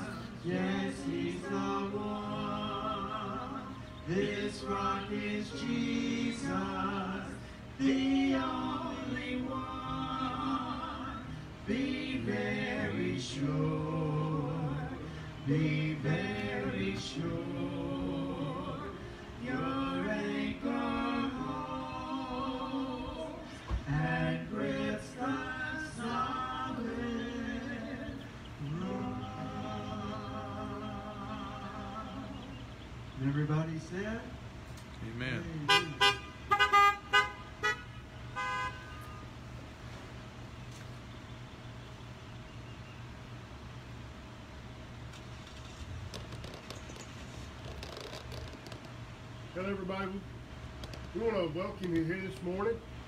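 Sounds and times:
group singing: 0.0s - 32.7s.

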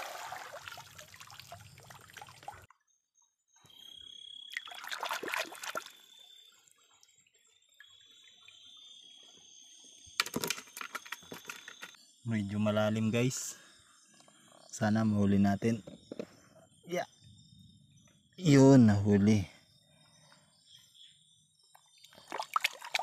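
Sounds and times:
water splashing and dripping: 0.0s - 2.7s, 4.5s - 6.0s, 22.0s - 23.0s
high insect chirp: 3.6s - 23.0s.

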